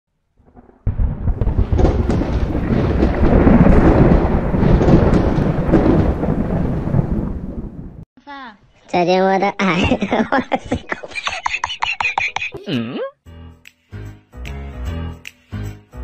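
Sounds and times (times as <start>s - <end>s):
deep thunder-like rumbling: 0.4s - 8.0s
sharp crackles: 0.4s - 8.0s.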